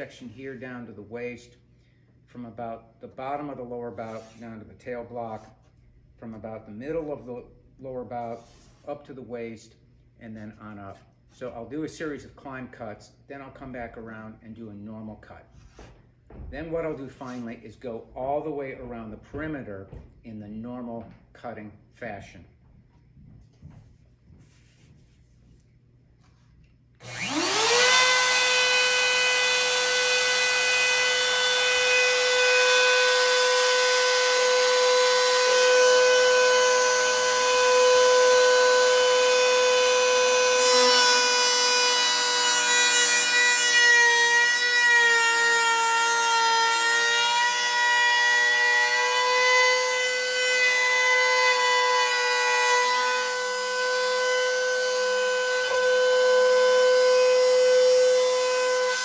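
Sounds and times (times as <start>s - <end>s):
router bit cutting wood: 27.0s - 59.0s
router whining: 27.0s - 59.0s.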